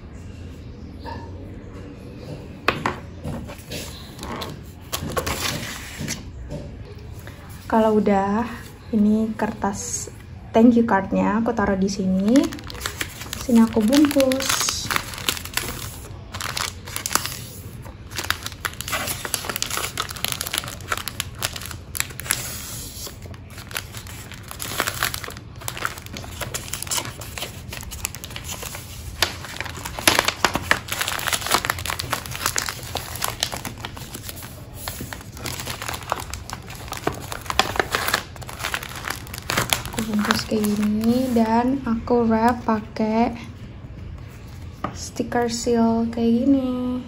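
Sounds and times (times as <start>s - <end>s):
wrapping paper crinkling: 12.1s - 41.8s.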